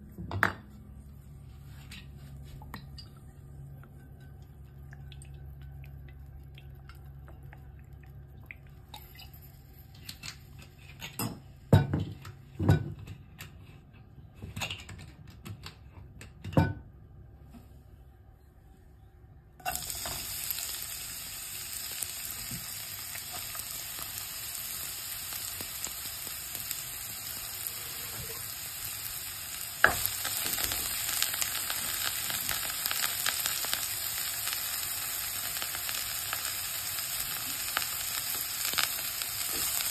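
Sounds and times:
onion sizzling in hot oil: 19.6 - 39.9.

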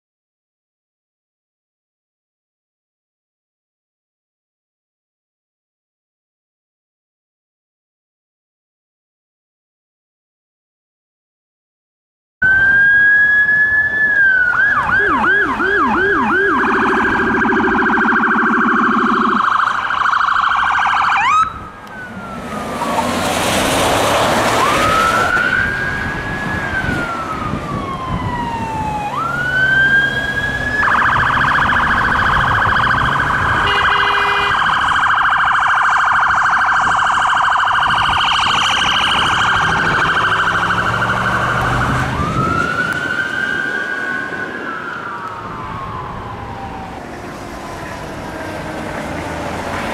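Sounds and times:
electronic sirens wailing and yelping: 12.4 - 49.5
vehicle passing: 14.8 - 34.8, 38.4 - 49.9.

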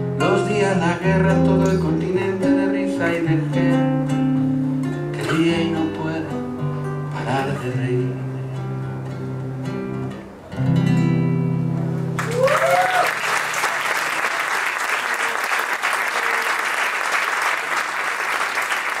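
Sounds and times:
audience applause: 12.2 - 19.0
audience cheer: 12.2 - 19.0.

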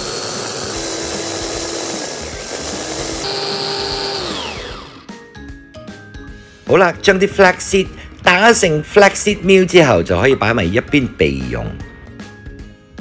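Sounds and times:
motor whine spinning down: 0.0 - 5.1
electric chopper grinding seeds: 0.0 - 5.2.

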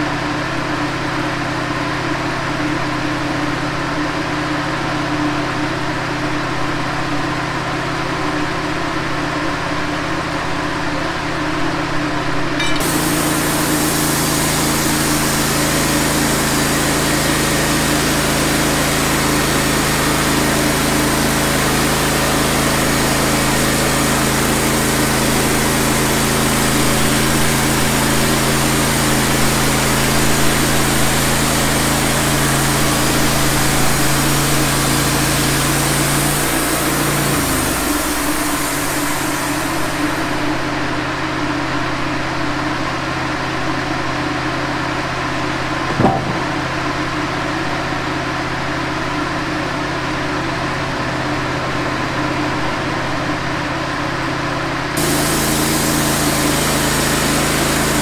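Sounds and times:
saw blade hissing through log: 12.6 - 18.4, 32.9 - 40.3, 55.0 - 58.0
sawmill engine running: 12.6 - 40.4, 55.0 - 58.0
knock: 45.9 - 46.9.

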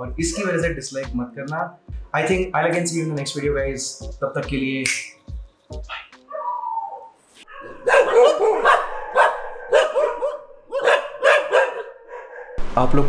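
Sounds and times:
dogs barking: 7.5 - 12.6.

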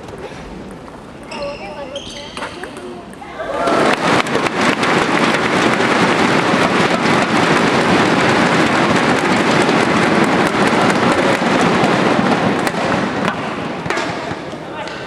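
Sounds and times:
thunder sticks clattering: 3.6 - 14.6.

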